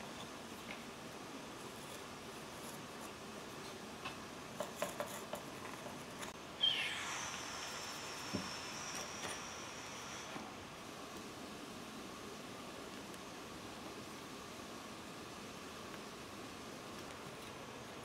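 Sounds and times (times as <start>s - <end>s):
modelling tools tapping on wood: 4.0s - 6.3s
thin high tone: 6.5s - 10.4s.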